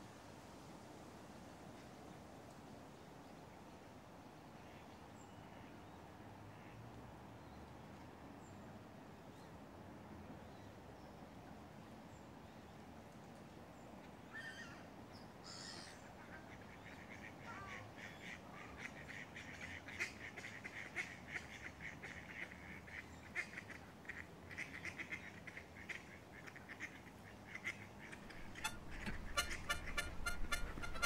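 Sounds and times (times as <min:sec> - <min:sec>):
rapid quack-like calls: 0:15.6 - 0:31.0.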